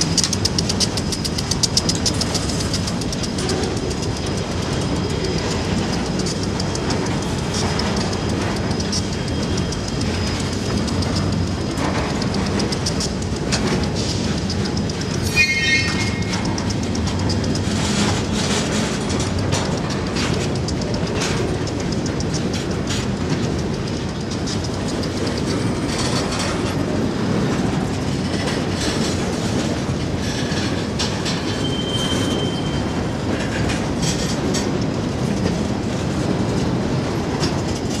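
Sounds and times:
train rumble: 0:00.0 - 0:38.0
train wheels clanking over rails: 0:00.0 - 0:38.0
high wheel squeal: 0:14.0 - 0:19.0, 0:31.3 - 0:33.1.

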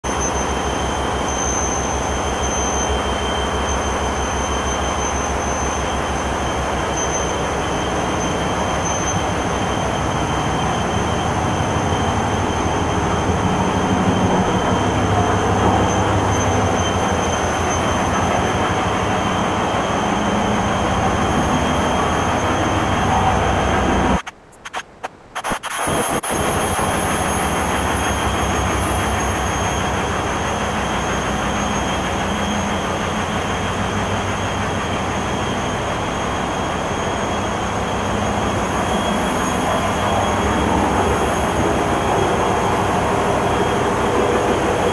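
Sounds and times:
thin high whine: 0:00.0 - 0:44.9
diesel generators droning: 0:00.1 - 0:44.9.

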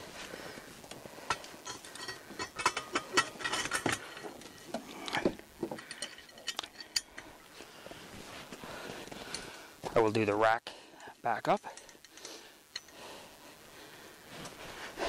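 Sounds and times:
metal hardware clicking and clinking: 0:01.3 - 0:07.4, 0:11.5 - 0:13.0.

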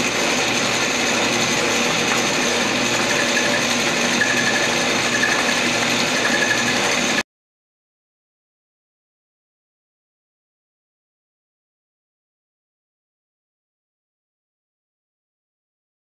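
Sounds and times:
metal lathe running: 0:00.0 - 0:07.2.

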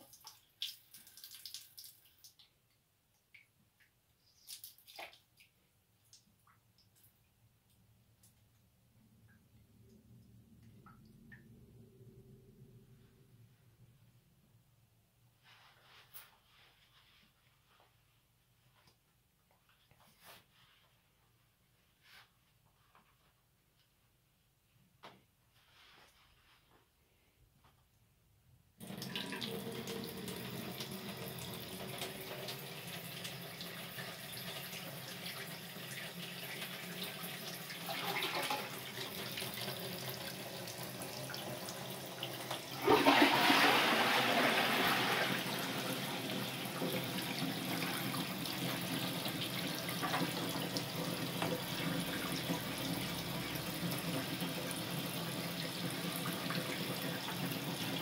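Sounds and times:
tap water running into sink: 0:28.8 - 0:58.0.

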